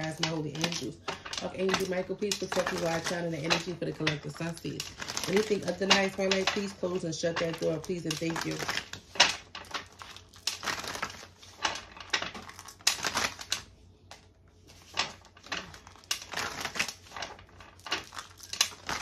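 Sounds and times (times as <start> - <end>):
cards being shuffled: 0.0 - 19.0.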